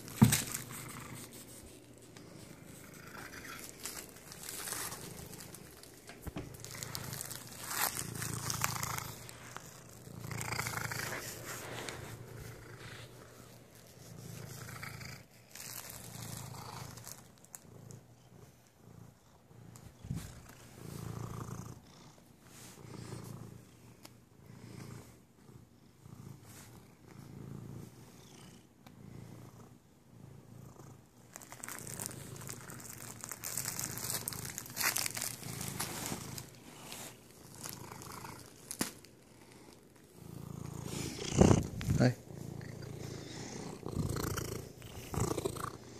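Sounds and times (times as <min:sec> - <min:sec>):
rustling: 0:00.0 - 0:18.0, 0:19.7 - 0:21.8, 0:31.2 - 0:45.9
cat purring: 0:00.0 - 0:45.9.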